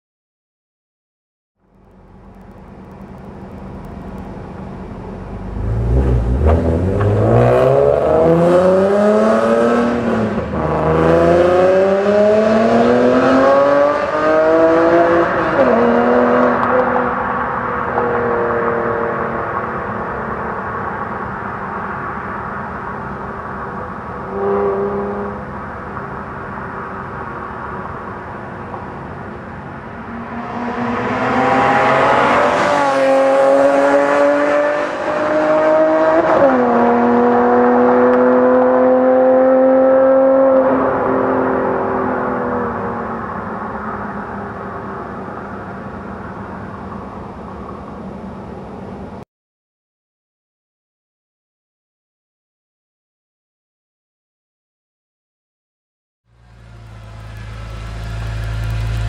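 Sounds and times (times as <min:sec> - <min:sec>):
car engine accelerating: 0:01.6 - 0:21.3, 0:30.0 - 0:43.2, 0:56.3 - 0:59.0.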